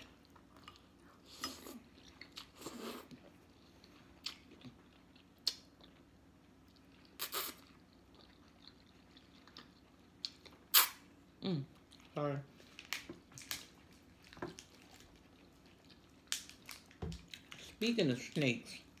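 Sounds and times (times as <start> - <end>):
quiet chewing: 0.0 - 17.8
noodle slurps: 7.2 - 7.6.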